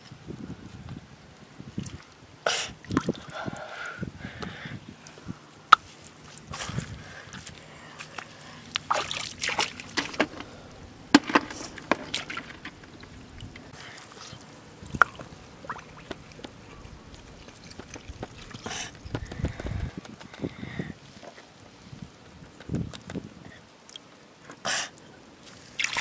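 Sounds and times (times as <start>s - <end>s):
wet splashes in muddy water: 6.0s - 10.4s, 25.4s - 26.0s.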